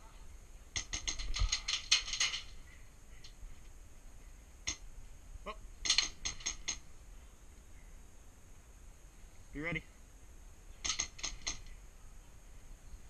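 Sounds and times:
airsoft gunfire snaps: 0:10.8 - 0:11.7.

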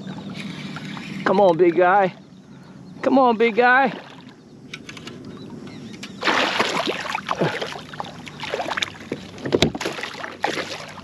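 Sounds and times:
water slapping: 0:03.4 - 0:04.4, 0:06.2 - 0:11.0
fish thrashing and splashing: 0:06.2 - 0:11.0.

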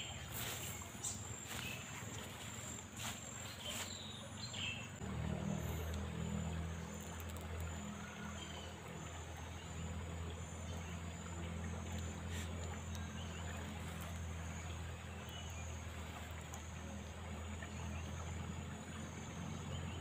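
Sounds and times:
faint high pulsing buzz: 0:00.0 - 0:04.5
low motor hum: 0:00.0 - 0:20.0.

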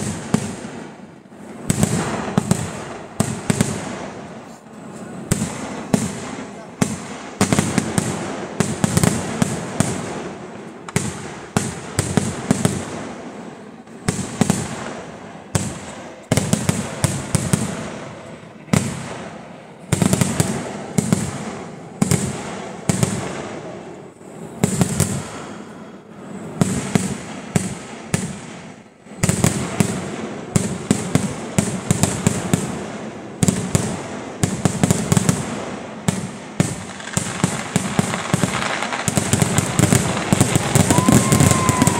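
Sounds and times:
firework cracks and bangs: 0:00.0 - 0:41.9.

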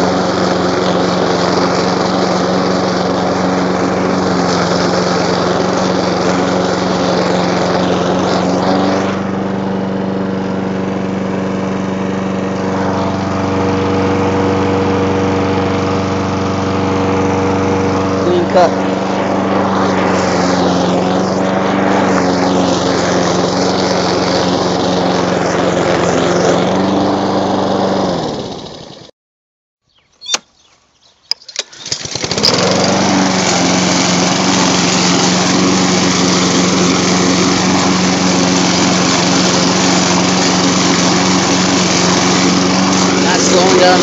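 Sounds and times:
lawn mower engine running: 0:00.0 - 0:29.1, 0:31.2 - 0:44.0
sharp clicks: 0:31.3 - 0:31.9.

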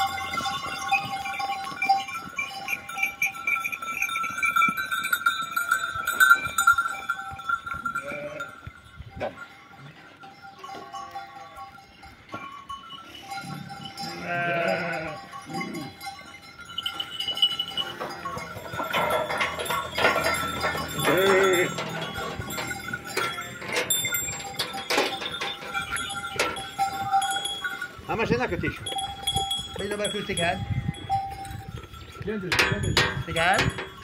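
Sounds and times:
sheep bells clinking: 0:00.0 - 0:34.0
sheep bleating: 0:14.0 - 0:16.0, 0:21.0 - 0:21.8.

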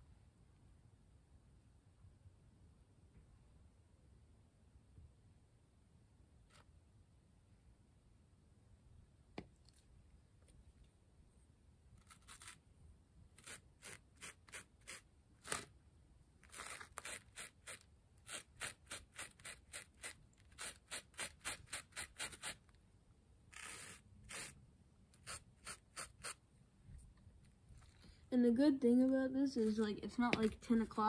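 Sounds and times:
paintbrush scraping foam board: 0:06.5 - 0:06.7, 0:12.0 - 0:12.6, 0:13.4 - 0:15.7, 0:16.4 - 0:22.7, 0:23.5 - 0:24.6, 0:25.2 - 0:26.4.

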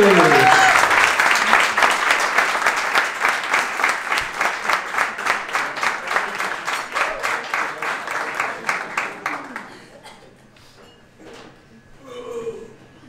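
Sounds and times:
audience applauding rhythmically: 0:00.0 - 0:10.0.

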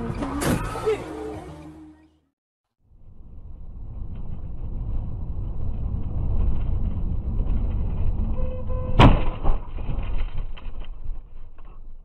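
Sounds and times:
car rumble and rattle on dirt road: 0:03.0 - 0:12.0
impact crash: 0:03.2 - 0:10.5.

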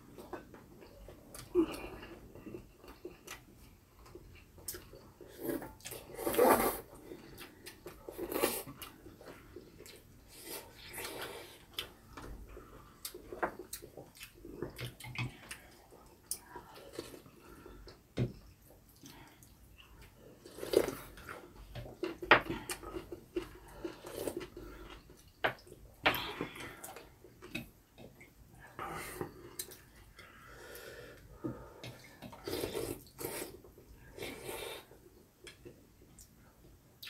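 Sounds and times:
slurping broth and noodles: 0:05.3 - 0:07.0.

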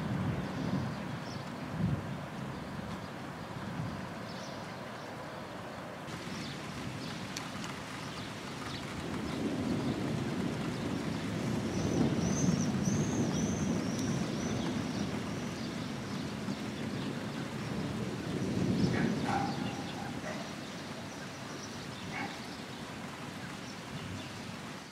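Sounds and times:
distant thunder rumbling: 0:06.1 - 0:23.6
bird chirping: 0:18.8 - 0:22.8.

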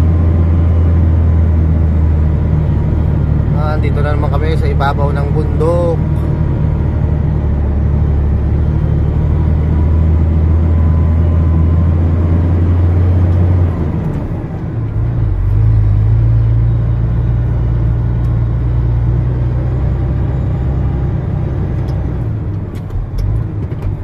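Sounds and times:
diesel truck engine under load: 0:00.0 - 0:24.0.

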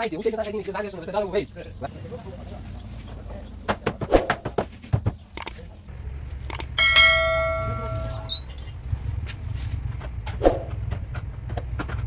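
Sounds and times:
low steady rumble: 0:05.7 - 0:12.0
metal struck and ringing: 0:06.8 - 0:08.6.

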